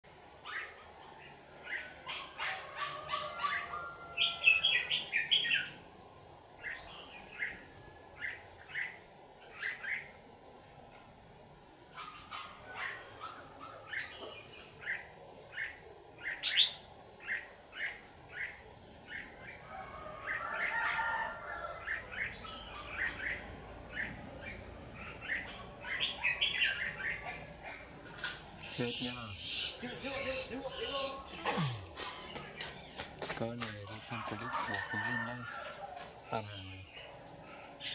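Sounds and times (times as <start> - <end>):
birds singing chattering song: 0.4 - 5.8, 6.6 - 10.2, 11.0 - 37.9
bird chirps: 28.6 - 34.4.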